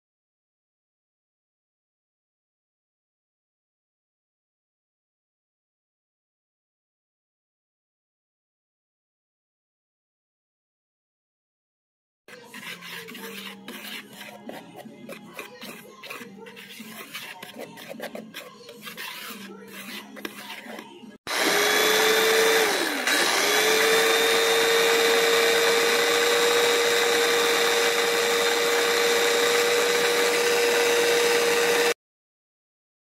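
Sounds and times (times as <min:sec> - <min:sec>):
flour stirred in a bowl: 0:12.3 - 0:32.0
food processor motor whining: 0:21.3 - 0:32.0.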